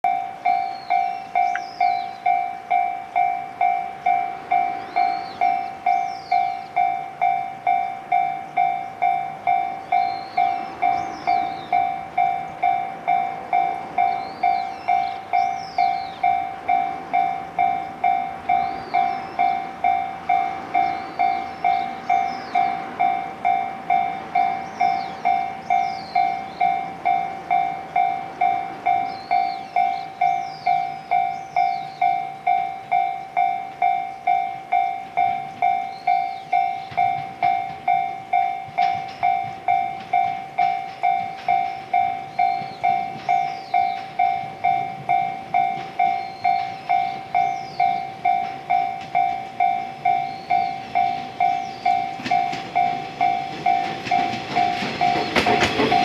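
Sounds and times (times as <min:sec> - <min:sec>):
level crossing bell ringing: 0:00.0 - 0:56.0
bird chirping: 0:00.1 - 0:56.0.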